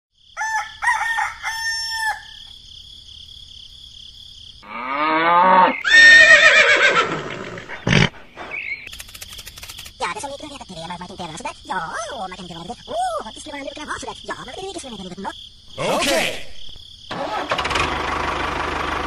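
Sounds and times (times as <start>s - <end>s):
rooster crowing: 0.4s - 2.5s
animal call: 4.6s - 8.9s
short chirping calls: 7.4s - 10.0s.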